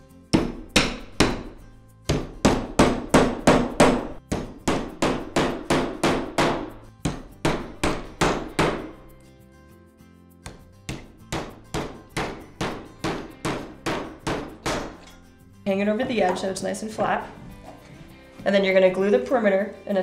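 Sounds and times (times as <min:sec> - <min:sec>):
hammer striking nails into wood: 0:00.4 - 0:01.5, 0:02.1 - 0:09.0, 0:10.4 - 0:15.0.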